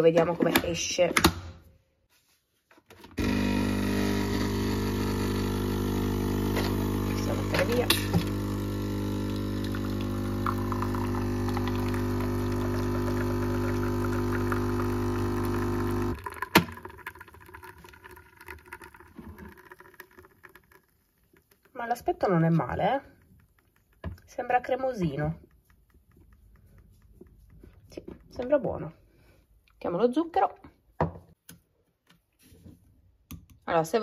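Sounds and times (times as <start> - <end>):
coffee machine pump humming: 3.2 - 20.8.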